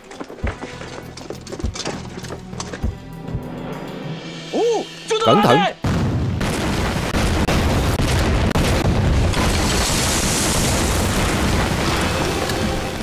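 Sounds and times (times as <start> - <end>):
large explosion with rumble: 5.8 - 13.0.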